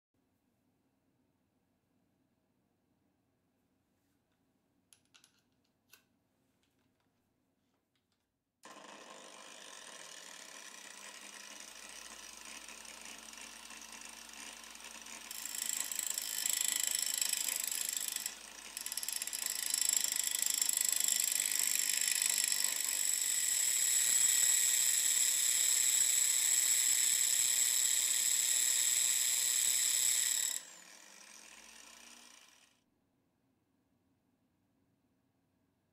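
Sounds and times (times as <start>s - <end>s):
power tool motors running: 8.6s - 32.8s.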